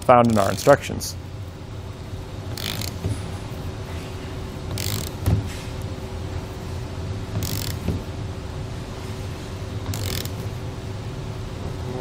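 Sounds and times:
torque wrench click: 2.5 - 3.1, 4.7 - 5.3, 7.4 - 8.0, 9.9 - 10.4
torque wrench ratcheting: 2.5 - 3.1, 4.7 - 5.3, 7.3 - 8.0, 9.8 - 10.5.

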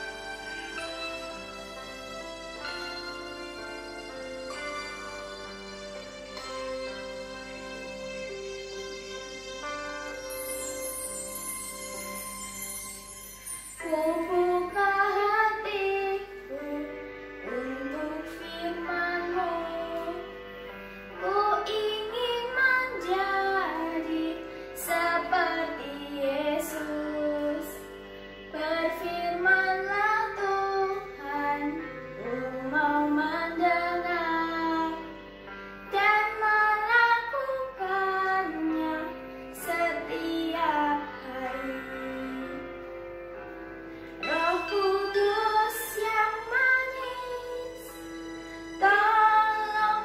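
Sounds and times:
backing track of held chords: 0.0 - 50.0
girl singing: 13.8 - 20.4, 21.1 - 27.9, 28.5 - 35.2, 35.8 - 42.8, 44.2 - 48.1, 48.8 - 50.0.

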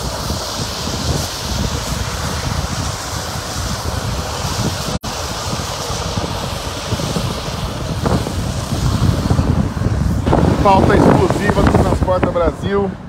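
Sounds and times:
road traffic: 0.0 - 13.0
wind rumbling on microphone: 0.0 - 13.0.

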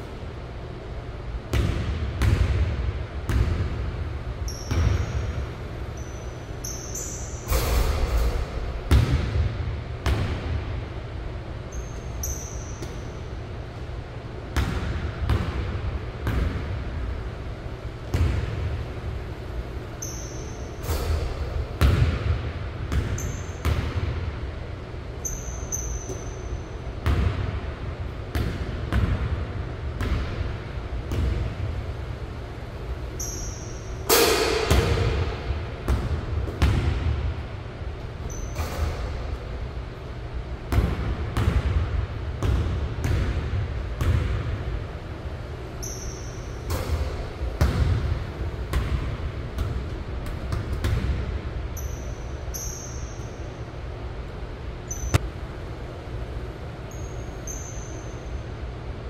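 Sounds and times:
basketball hitting rim and backboard: 1.5 - 10.8, 11.7 - 13.2, 14.5 - 16.9, 18.0 - 19.0, 20.0 - 24.3, 25.2 - 31.8, 33.2 - 37.4, 38.2 - 39.5, 40.7 - 44.7, 45.8 - 53.4
sneaker squeaks: 4.4 - 8.6, 11.7 - 13.4, 19.8 - 22.0, 22.9 - 24.0, 25.1 - 26.9, 33.0 - 35.4, 38.2 - 39.5, 45.7 - 47.2, 51.7 - 53.6, 54.9 - 55.2, 56.8 - 58.5
basketball bouncing on hardwood floor: 8.9 - 9.4, 21.8 - 22.3, 22.9 - 24.0, 42.4 - 44.5.

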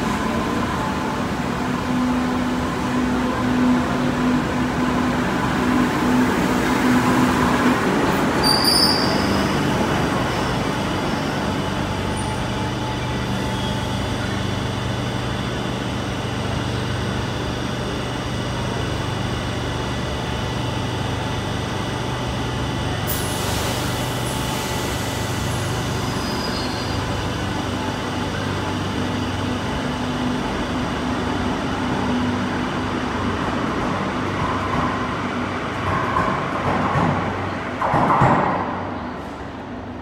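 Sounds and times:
train wheels rumbling on rail: 0.0 - 40.0
high wheel squeal: 8.4 - 9.6, 26.0 - 27.2.

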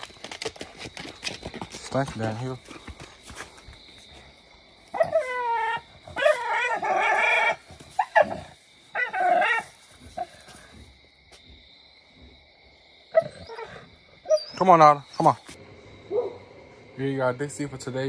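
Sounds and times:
dog whining: 5.0 - 9.6.

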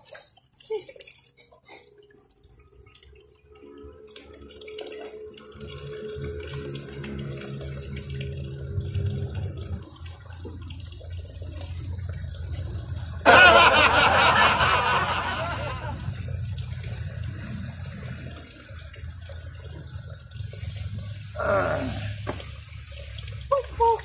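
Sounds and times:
water running and splashing: 0.0 - 24.0
loud rush of water: 13.3 - 16.1.

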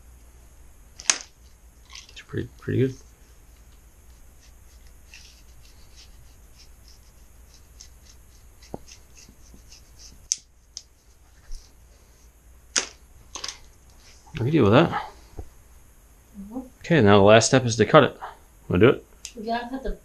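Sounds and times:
faint ticks and rustles: 1.4 - 12.3.

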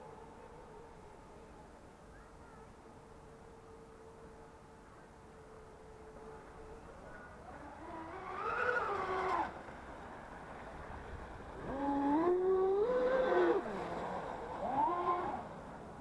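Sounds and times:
toy boat electric motor whining: 5.4 - 9.9, 11.6 - 16.0.

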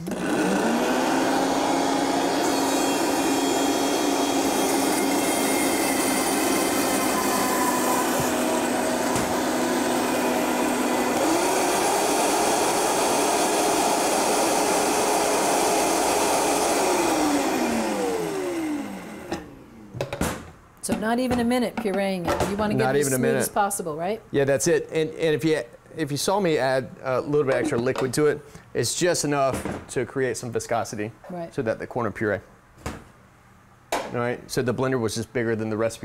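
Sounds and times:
blender running: 0.0 - 19.9.

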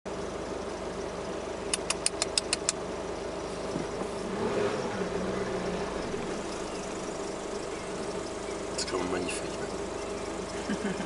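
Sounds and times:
engine idling: 0.1 - 11.0
sharp clicks: 1.7 - 2.8.

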